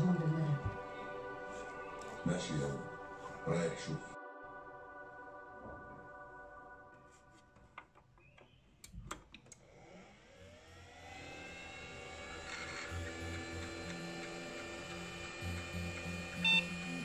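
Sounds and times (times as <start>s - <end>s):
spindle motor whine: 9.6s - 17.0s.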